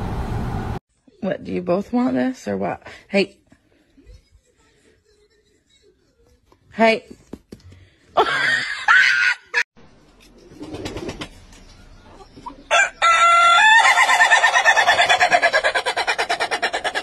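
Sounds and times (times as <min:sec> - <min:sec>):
rooster crowing: 0:12.7 - 0:15.8.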